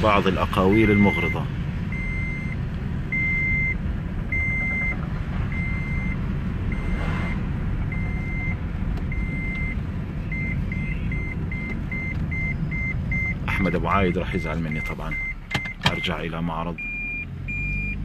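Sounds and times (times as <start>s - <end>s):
engine and road rumble: 0.0s - 18.0s
reversing beeper: 0.6s - 2.6s, 16.8s - 18.0s.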